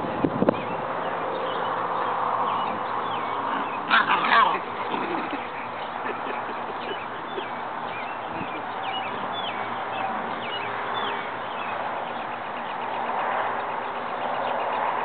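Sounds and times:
small birds chirping: 0.2 - 15.0
loud animal call: 3.4 - 5.7.

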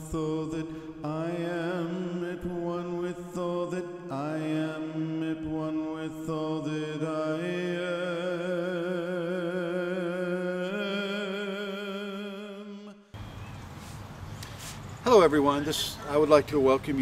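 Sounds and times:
chant sung over low drone: 0.0 - 13.1.

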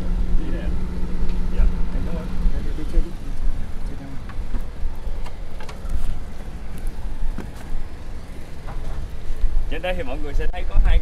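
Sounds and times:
boat engine idling: 0.0 - 10.4
footsteps on wooden deck: 4.4 - 7.8.

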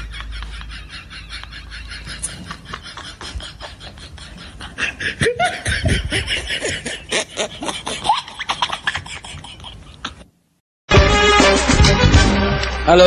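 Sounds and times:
person laughing: 0.0 - 10.3.

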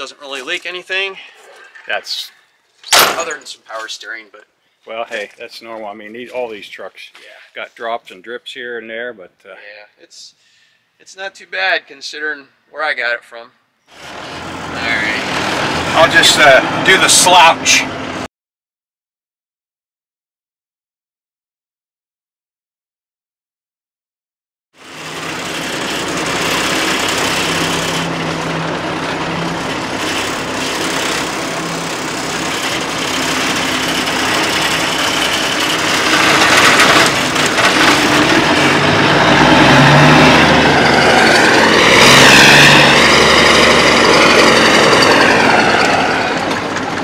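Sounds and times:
diesel truck engine revving: 13.9 - 18.3, 24.8 - 47.0.

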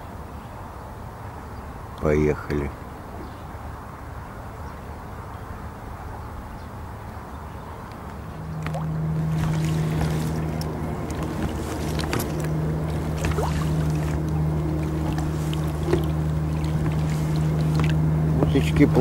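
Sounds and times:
outboard motor droning: 6.9 - 19.0.

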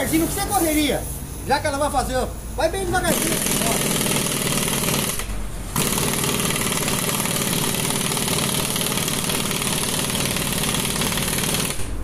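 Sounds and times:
pneumatic impact wrench rattling: 2.9 - 12.0.

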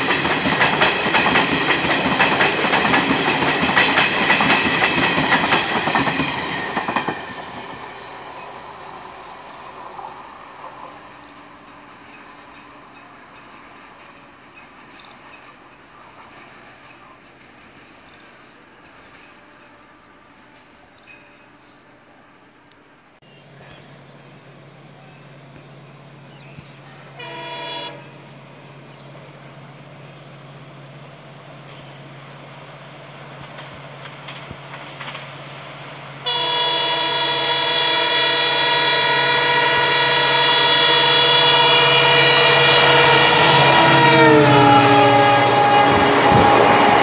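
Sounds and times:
diesel locomotive engine drone: 0.0 - 47.0
train horn blasts: 27.0 - 28.3, 36.2 - 47.0.

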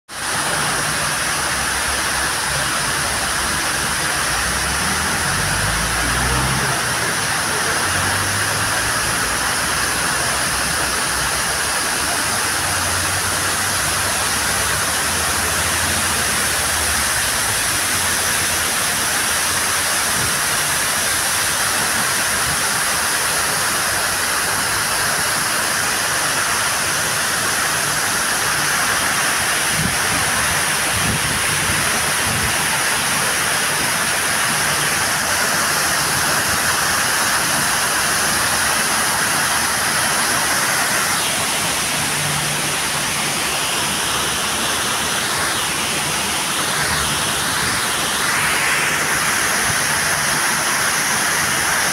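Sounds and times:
waterfall pouring into pool: 0.1 - 51.9.

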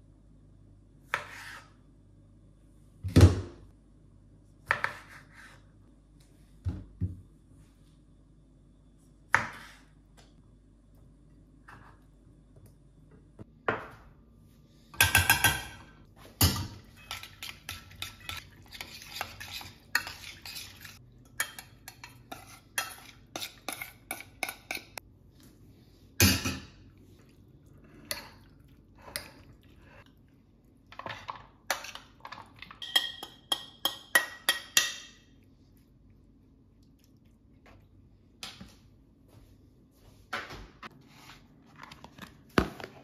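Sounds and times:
metal spoon scraping plate and pan: 16.8 - 25.0.

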